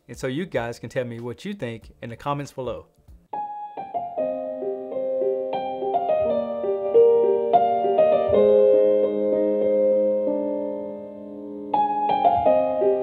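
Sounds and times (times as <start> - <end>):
slow solo piano: 3.4 - 13.0.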